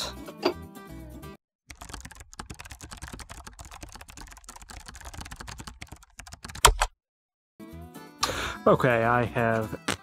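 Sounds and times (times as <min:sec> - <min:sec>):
fast typing on keyboard: 0:01.7 - 0:06.9.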